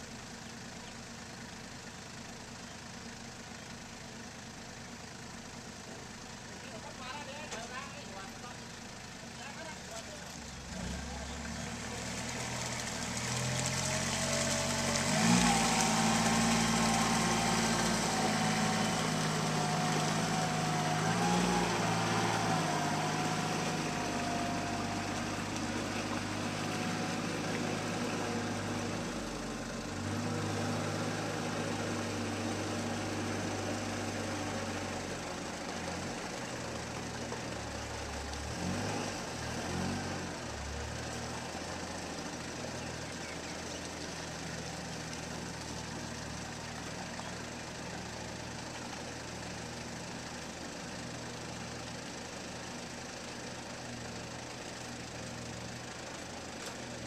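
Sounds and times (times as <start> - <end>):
tractor engine idling: 0.0 - 38.4, 40.3 - 57.0
tractor diesel engine: 0.0 - 57.0.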